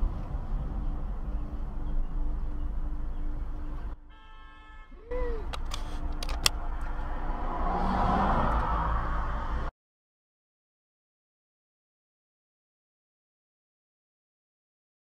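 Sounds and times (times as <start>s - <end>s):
car road noise and engine rumble: 0.0s - 9.7s
sharp clicks: 5.4s - 7.0s.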